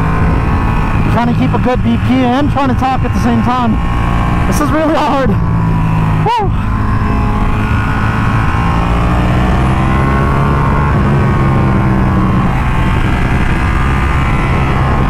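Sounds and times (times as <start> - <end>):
motorcycle engine at speed: 0.0 - 15.0.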